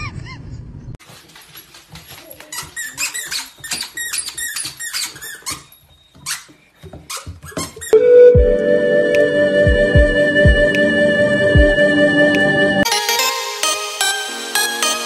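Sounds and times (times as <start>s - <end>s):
squeaky dog toy squeaking: 2.5s - 8.0s
loud music: 8.0s - 15.0s.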